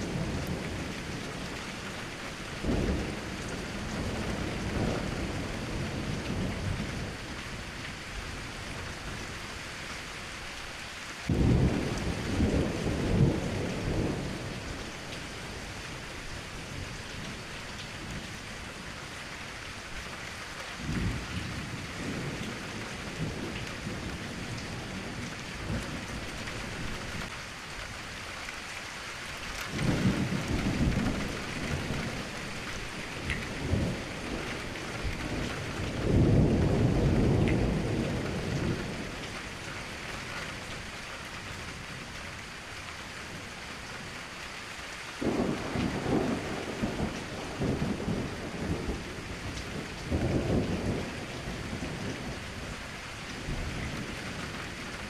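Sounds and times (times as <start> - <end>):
steady rain: 0.0 - 55.0
rolling thunder: 2.5 - 7.7, 11.3 - 17.4, 29.7 - 39.3, 45.2 - 52.8.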